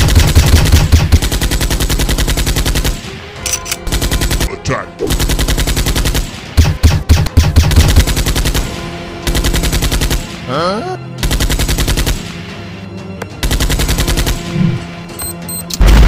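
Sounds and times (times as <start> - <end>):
machine-gun bursts: 0.0 - 4.5, 5.1 - 10.3, 11.2 - 12.2, 13.4 - 14.5.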